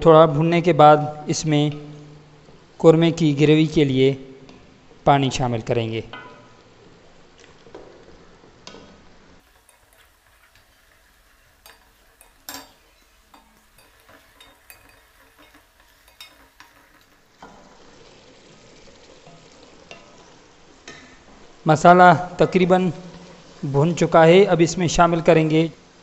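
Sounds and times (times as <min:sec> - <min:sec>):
food sizzling in a pot: 0:08.7 - 0:23.7
spatula scraping a pot: 0:09.4 - 0:17.4.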